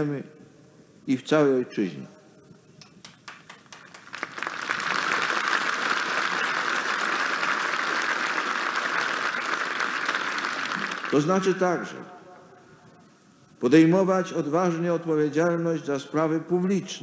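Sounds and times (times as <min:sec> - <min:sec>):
audience applause: 0:03.2 - 0:11.6.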